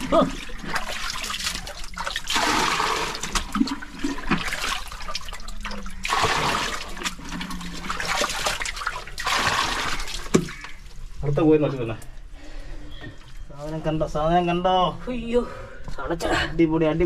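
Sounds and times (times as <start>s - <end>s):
bucket scooping and sloshing water: 0.0s - 11.9s.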